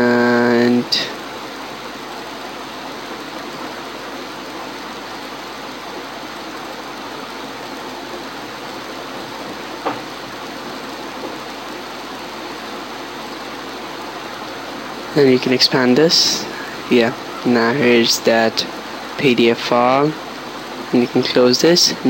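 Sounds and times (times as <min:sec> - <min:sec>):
microphone background hiss: 0:00.0 - 0:22.0.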